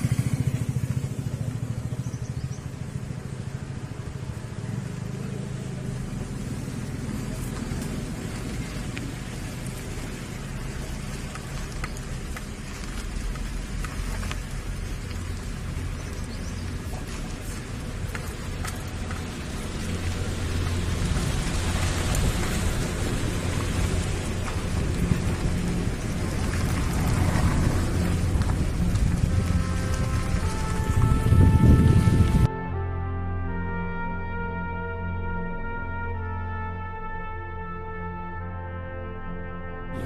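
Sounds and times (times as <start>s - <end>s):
low engine hum: 0.0s - 38.2s
wind noise on microphone: 8.1s - 32.8s.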